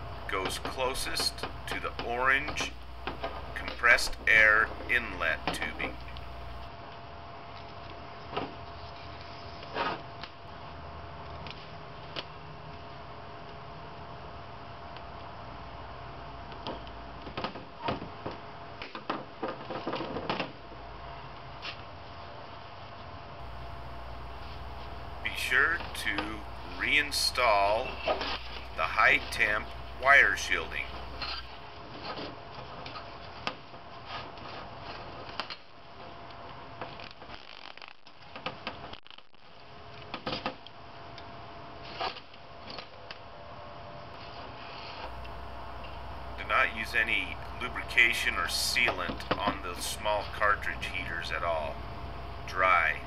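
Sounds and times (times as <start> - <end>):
steady background hiss: 0.0 - 6.7, 23.4 - 31.8, 44.6 - 53.0.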